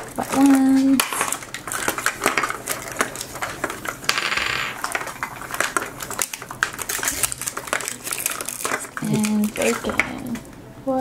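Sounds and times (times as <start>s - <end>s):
wrapper rustling: 0.0s - 10.5s.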